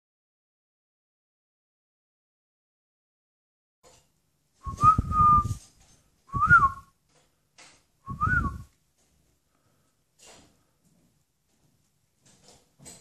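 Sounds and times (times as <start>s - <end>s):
short loud whistles: 4.6s - 5.6s, 6.3s - 6.9s, 8.1s - 8.7s.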